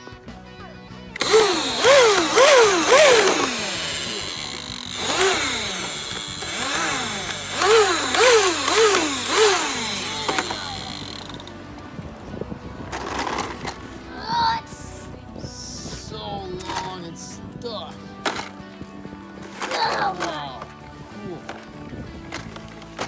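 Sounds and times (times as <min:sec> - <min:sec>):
toy engine revving sound effect: 0:01.2 - 0:11.5.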